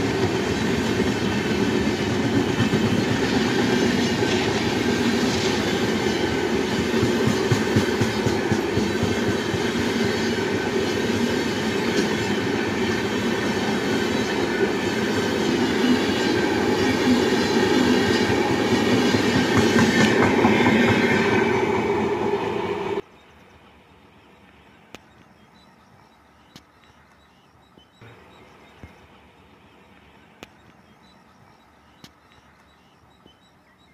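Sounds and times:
train coaches rushing past: 0:00.0 - 0:23.0.

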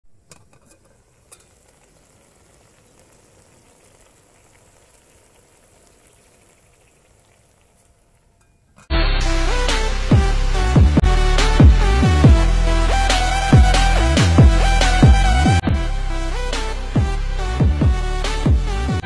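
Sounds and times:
chicken sizzling in pot: 0:00.0 - 0:08.6.

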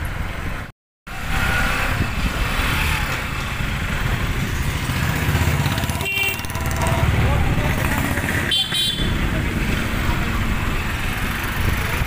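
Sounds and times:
road and wind noise: 0:00.0 - 0:12.0
motorcycle engine running: 0:02.9 - 0:12.0.

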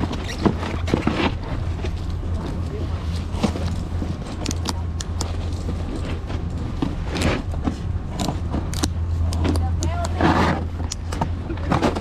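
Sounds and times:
steady low hum: 0:00.0 - 0:12.0
ratchet straps clicking: 0:03.6 - 0:06.1, 0:08.1 - 0:11.2.

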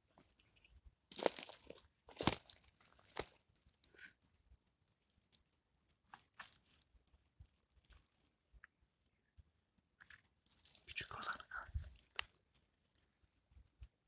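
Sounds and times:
dry pine needles crunching: 0:01.1 - 0:04.0, 0:06.1 - 0:08.2, 0:10.0 - 0:13.1.

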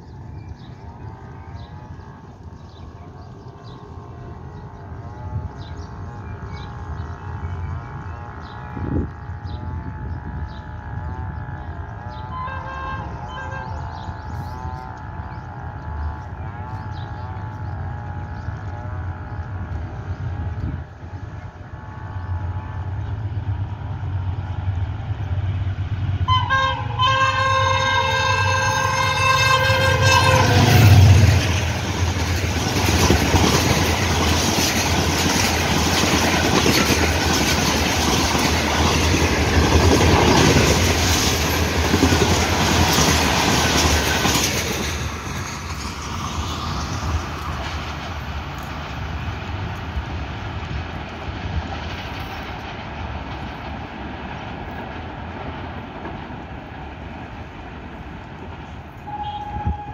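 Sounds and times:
locomotive horn chord: 0:12.0 - 0:15.4, 0:26.2 - 0:31.3, 0:59.0 - 0:59.9
train wheels clickety-clack: 0:26.3 - 0:59.9.

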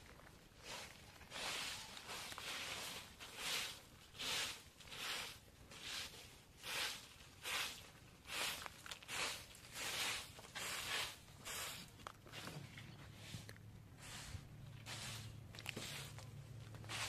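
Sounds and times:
branches sweeping dusty ground: 0:00.0 - 0:12.4, 0:14.0 - 0:17.0.

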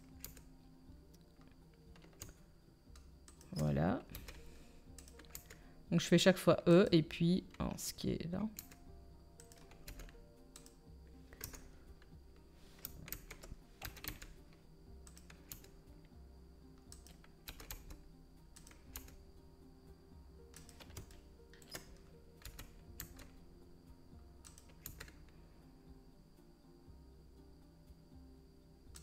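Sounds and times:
keyboard keys clicking: 0:09.4 - 0:11.7, 0:12.8 - 0:14.4, 0:16.9 - 0:18.0, 0:20.5 - 0:23.3.

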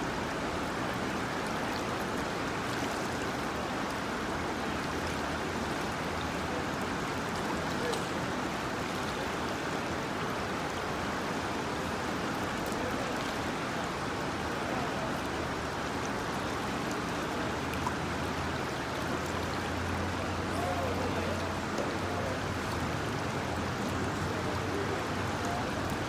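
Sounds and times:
river water rushing over rocks: 0:00.0 - 0:26.0.

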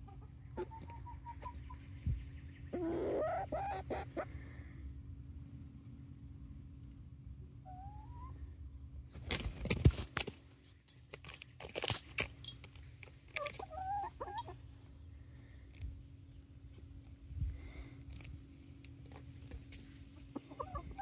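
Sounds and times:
young chickens calling: 0:00.0 - 0:05.8, 0:07.4 - 0:08.8, 0:12.4 - 0:16.9, 0:18.9 - 0:21.0
scuffing and crunching near microphone: 0:09.1 - 0:13.6.

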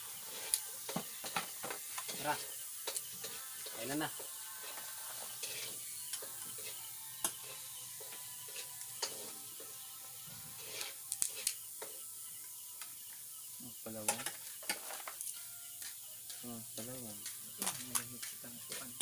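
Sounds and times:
background hiss: 0:00.0 - 0:19.0
tableware clinking: 0:14.0 - 0:15.4.

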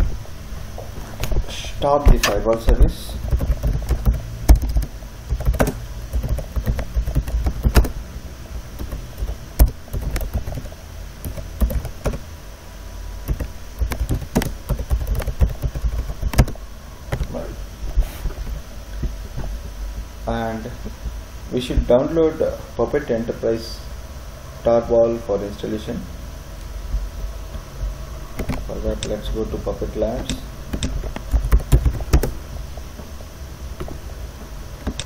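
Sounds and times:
steady low hum: 0:00.0 - 0:35.0
keyboard typing: 0:03.2 - 0:08.0, 0:08.8 - 0:12.2, 0:13.2 - 0:17.3, 0:28.4 - 0:29.2, 0:30.2 - 0:32.4, 0:34.8 - 0:35.0.

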